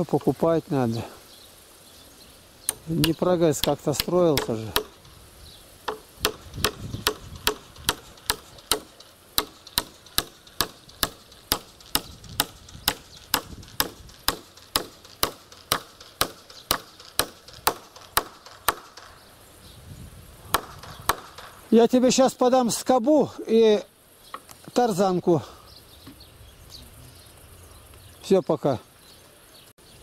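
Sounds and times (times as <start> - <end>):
hammer striking nail in wood: 2.7 - 5.0, 5.8 - 19.1, 20.5 - 21.6.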